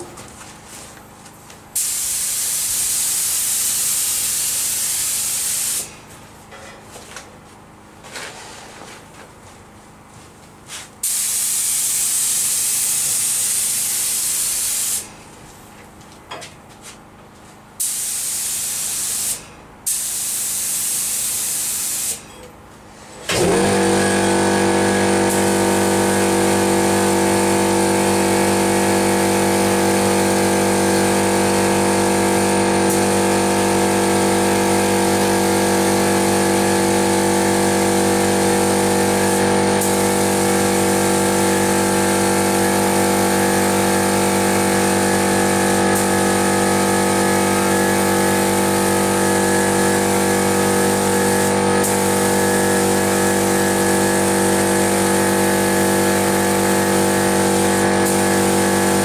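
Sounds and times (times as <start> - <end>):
paint spray gun hissing: 1.8 - 5.9, 11.0 - 15.1, 17.8 - 22.2, 24.8 - 59.0
steady machine hum: 22.2 - 59.0.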